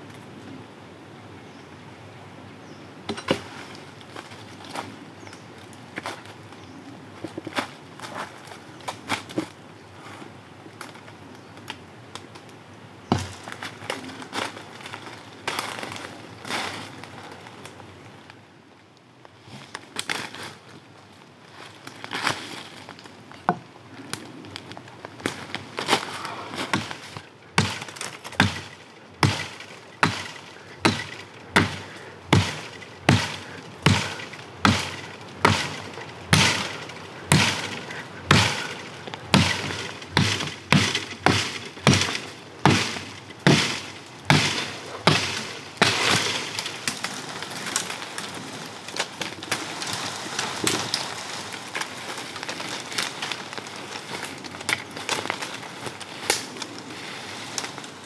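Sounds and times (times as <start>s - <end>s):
cracking and rustling of twigs: 3.1s - 58.0s
blade chopping wood: 13.1s - 13.4s, 26.6s - 47.1s.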